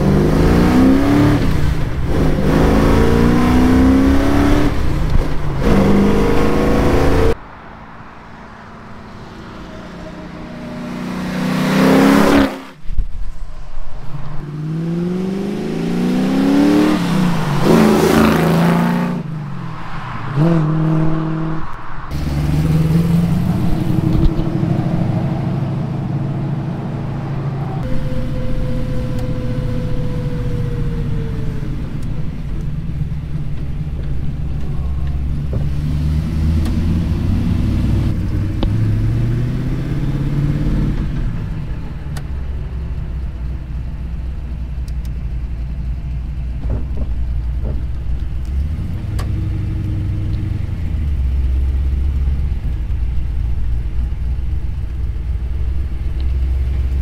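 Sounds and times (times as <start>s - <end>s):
car engine accelerating hard: 0.0s - 7.4s, 8.2s - 12.8s, 20.4s - 43.4s
car passing at full throttle: 0.0s - 12.8s, 13.4s - 30.2s.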